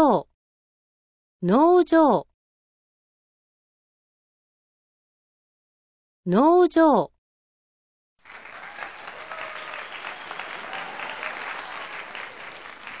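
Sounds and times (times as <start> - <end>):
crowd applauding: 8.2 - 13.0
people cheering: 8.2 - 13.0.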